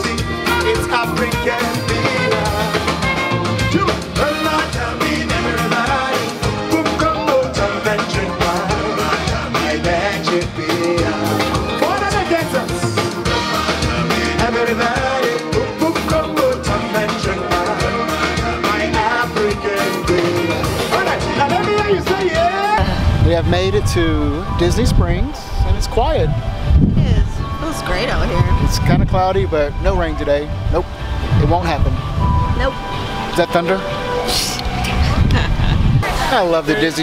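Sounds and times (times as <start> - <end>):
song with singing and drum beat: 0.0 - 23.1.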